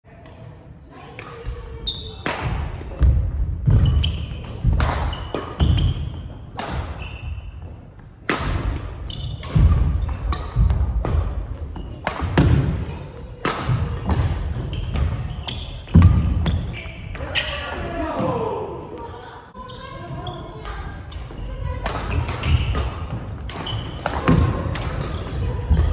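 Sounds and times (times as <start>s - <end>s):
rackets hitting shuttlecock: 1.1s - 7.4s, 8.0s - 17.5s, 20.1s - 25.9s
shoes thudding and squeaking on wood: 3.7s - 6.4s.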